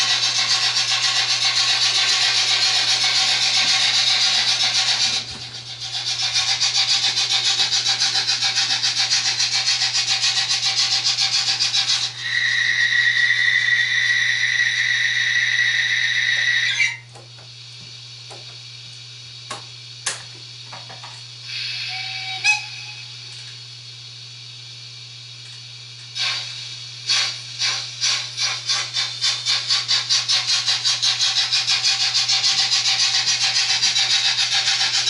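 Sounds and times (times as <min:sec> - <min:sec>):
model train wheels rasping: 0:00.0 - 0:16.6, 0:26.1 - 0:35.0
high steady squeal: 0:11.4 - 0:17.1, 0:21.5 - 0:23.2.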